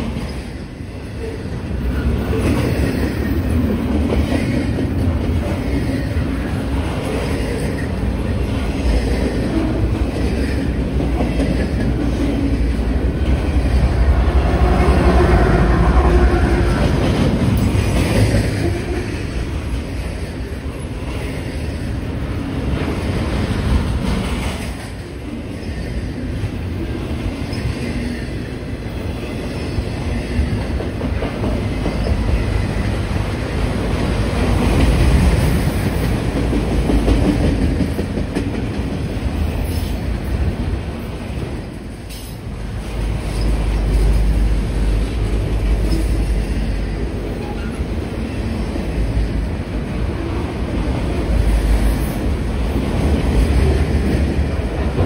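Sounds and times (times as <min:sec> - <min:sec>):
steel wheels rumbling on rail: 0:00.0 - 0:55.0
clacks over rail joints: 0:34.5 - 0:39.2.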